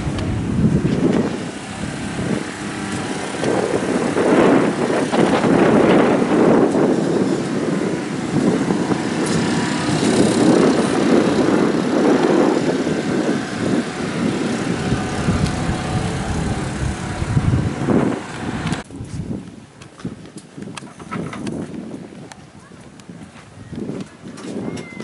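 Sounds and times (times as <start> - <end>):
engine running: 0.0 - 18.9.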